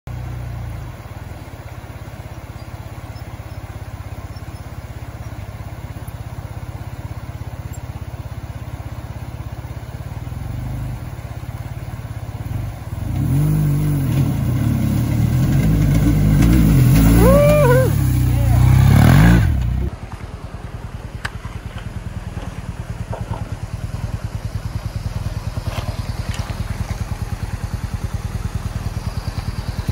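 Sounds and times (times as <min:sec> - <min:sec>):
motorcycle engine revving: 0:10.2 - 0:20.0, 0:21.3 - 0:29.9
water splashing: 0:23.7 - 0:27.8.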